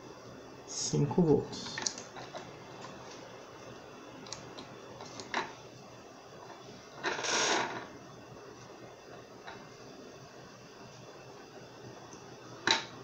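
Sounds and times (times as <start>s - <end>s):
wires rustling and scraping: 1.6s - 3.3s.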